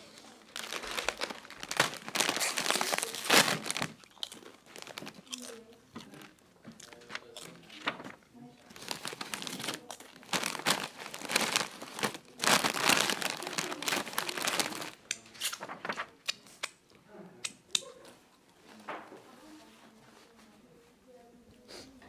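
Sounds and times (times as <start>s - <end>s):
crisp packet crinkling: 0.0s - 16.2s.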